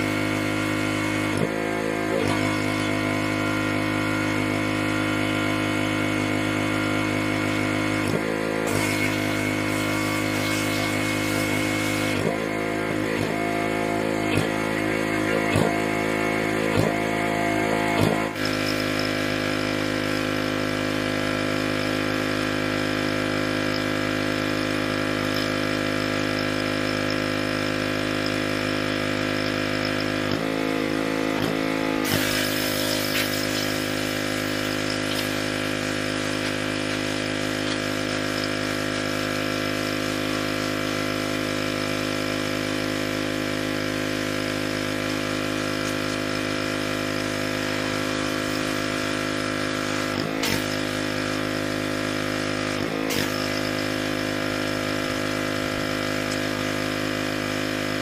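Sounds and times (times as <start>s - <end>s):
pressure washer motor humming: 0.0s - 58.0s
water spray hissing: 32.1s - 35.5s.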